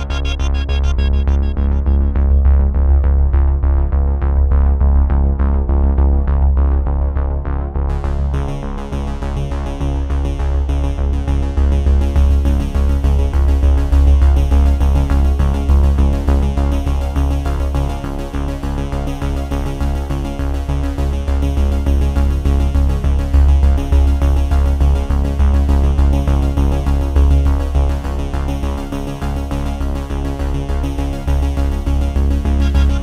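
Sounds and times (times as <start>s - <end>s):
hissy high synth layer: 0.0s - 2.5s, 32.5s - 33.0s
repeating synth note pattern: 0.0s - 2.8s, 32.5s - 33.0s
deep synthesizer bass: 0.0s - 33.0s.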